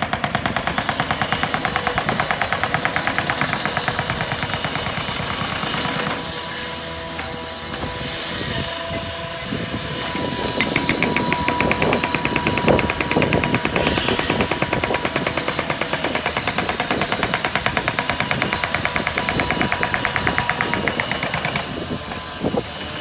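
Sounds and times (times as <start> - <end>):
power hammer pounding: 0.0 - 6.2, 10.0 - 21.8
machinery hum: 6.3 - 14.8.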